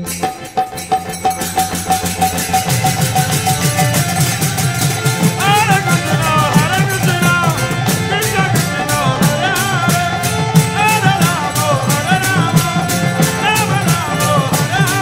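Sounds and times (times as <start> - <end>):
drum beat: 0.0 - 15.0
hand cymbals: 0.0 - 15.0
person singing devotional song: 2.2 - 15.0.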